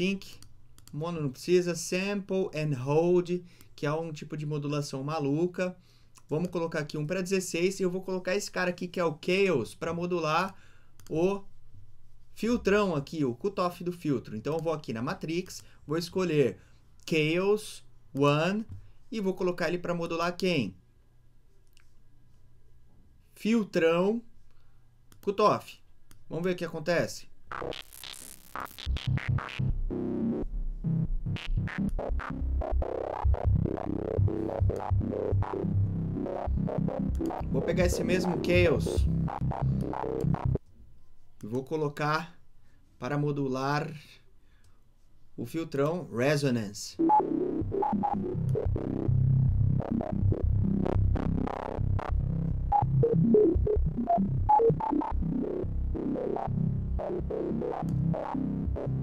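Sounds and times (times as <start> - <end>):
choppy filtered synth note: 27.5 - 40.6, 47.0 - 59.0.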